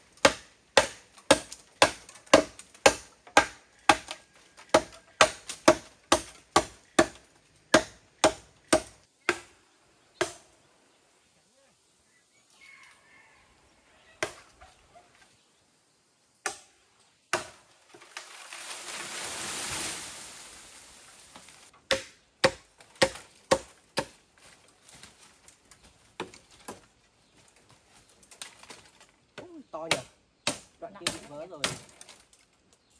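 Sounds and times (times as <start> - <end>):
machete chopping bamboo: 0.2 - 9.6, 10.2 - 10.5, 16.4 - 18.3, 21.3 - 24.2, 26.2 - 26.8, 29.4 - 32.2.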